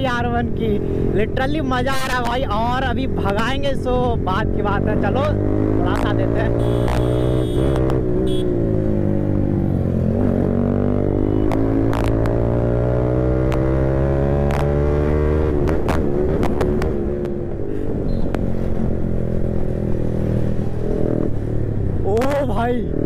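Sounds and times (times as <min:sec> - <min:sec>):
motorcycle engine accelerating: 0:04.3 - 0:23.0
short sharp clicks: 0:06.8 - 0:07.1.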